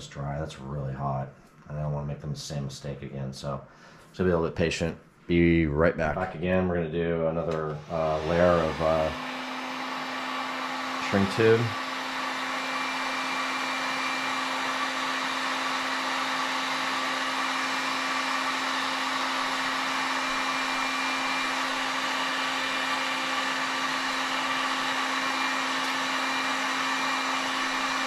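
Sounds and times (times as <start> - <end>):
heat gun blowing air: 7.5 - 28.0.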